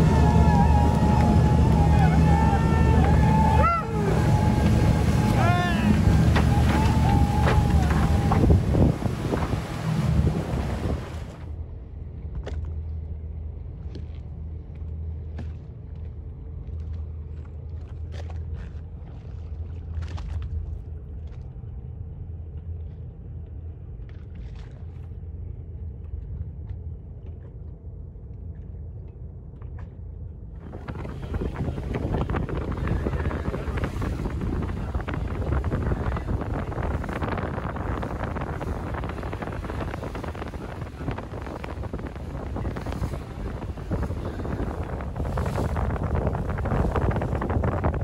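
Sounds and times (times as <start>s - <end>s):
faint water slaps: 0.0s - 11.5s, 13.8s - 21.6s
wind buffeting microphone: 0.0s - 11.6s, 30.5s - 48.0s
boat engine idling: 0.0s - 48.0s.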